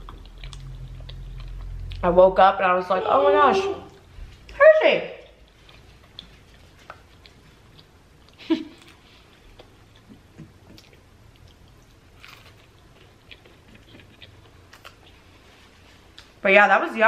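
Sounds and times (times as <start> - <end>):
person chewing crunchy food: 0.0 - 2.0, 5.4 - 15.5.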